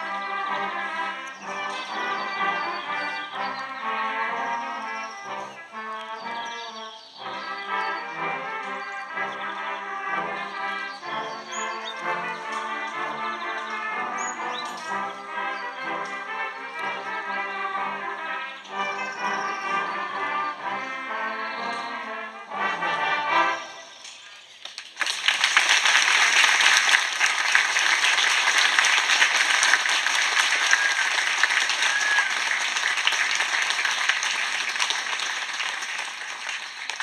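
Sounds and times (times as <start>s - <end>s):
brass ensemble playing: 0.0s - 24.0s, 25.2s - 37.0s
audience applause: 24.6s - 37.0s.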